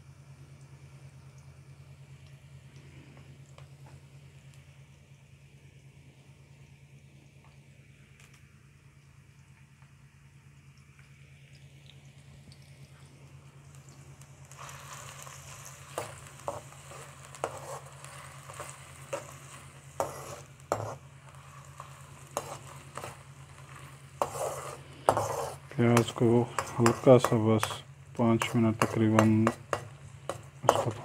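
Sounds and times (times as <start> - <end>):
onions sizzling in oil: 13.4 - 31.0
spoon scraping a pan: 14.6 - 31.0.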